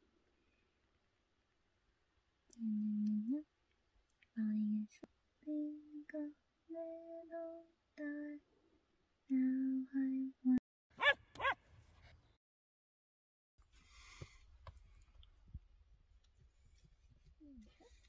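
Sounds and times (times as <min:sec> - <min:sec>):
woman softly humming: 0:02.5 - 0:03.5, 0:09.3 - 0:10.6, 0:17.4 - 0:18.0.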